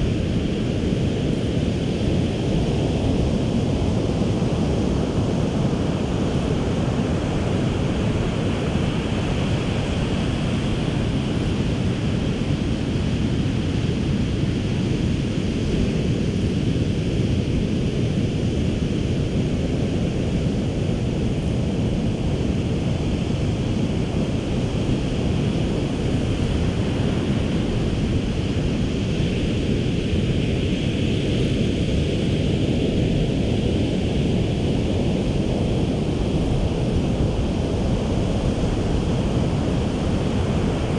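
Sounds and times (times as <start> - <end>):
wind rumbling on microphone: 0.0 - 40.9
ocean surf on a beach: 36.0 - 40.9.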